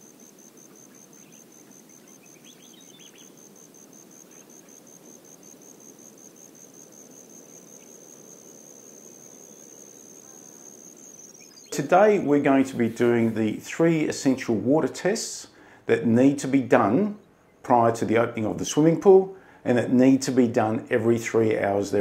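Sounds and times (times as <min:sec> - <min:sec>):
high-pitched insect call: 0:00.0 - 0:13.6
low background hiss: 0:00.0 - 0:22.0.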